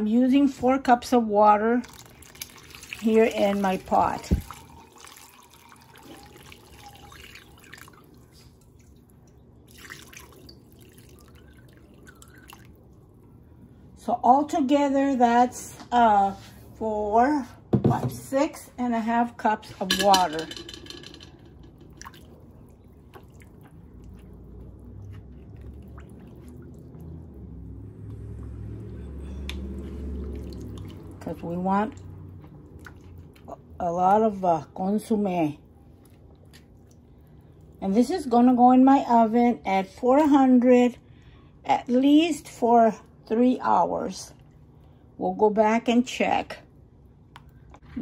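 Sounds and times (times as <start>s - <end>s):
liquid squishing and sloshing: 1.5s - 13.7s, 21.5s - 33.8s, 35.7s - 37.8s
water pouring into a pot: 1.8s - 12.9s.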